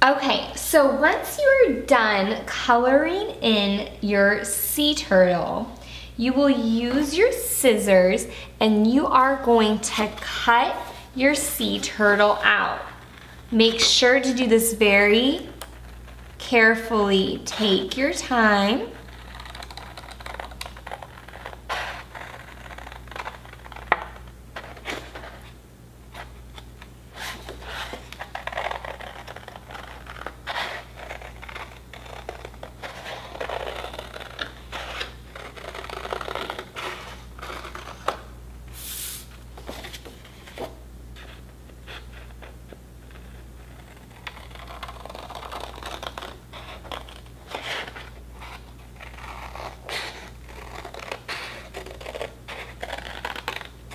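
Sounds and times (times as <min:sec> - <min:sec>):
scissors snipping paper: 0:18.3 - 0:24.2, 0:43.7 - 0:53.7.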